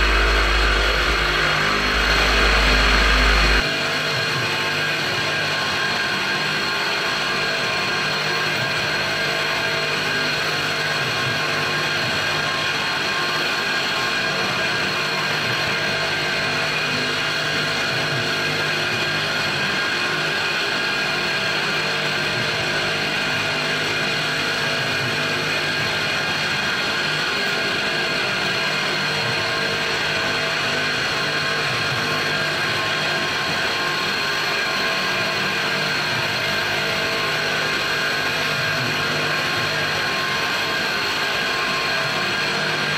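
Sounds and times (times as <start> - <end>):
milling machine cutting metal: 0.0 - 4.2.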